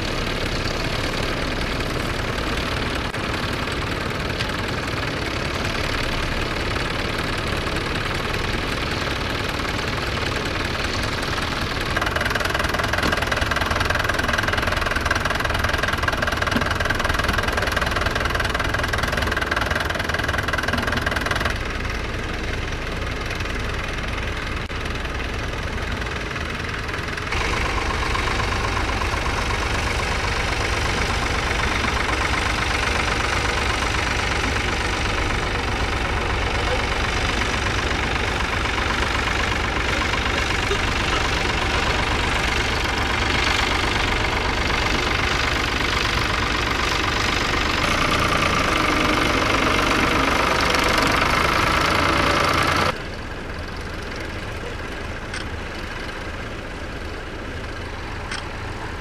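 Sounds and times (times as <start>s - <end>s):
tractor engines running: 0.0s - 59.0s.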